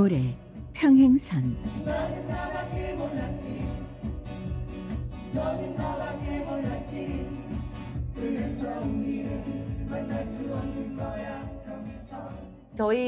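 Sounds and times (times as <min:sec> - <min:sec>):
acoustic guitars strumming: 0:01.6 - 0:12.7
group singing: 0:01.7 - 0:12.7.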